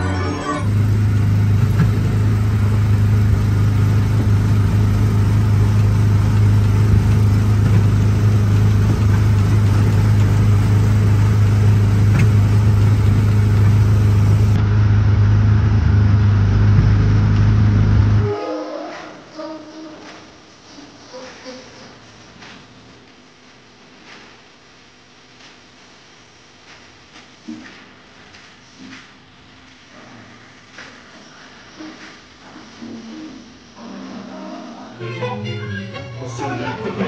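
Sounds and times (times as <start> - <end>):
small gasoline engine running: 0.6 - 18.2.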